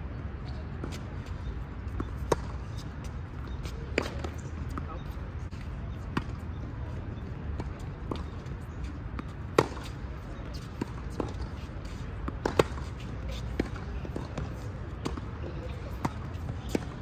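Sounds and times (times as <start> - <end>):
tennis ball bouncing: 1.8 - 4.9, 7.6 - 17.0.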